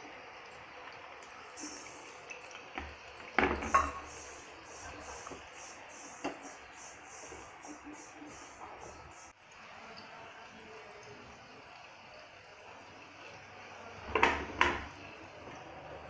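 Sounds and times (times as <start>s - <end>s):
oil sizzling: 0.0s - 9.4s
metal skimmer scraping frying pan: 3.4s - 9.3s.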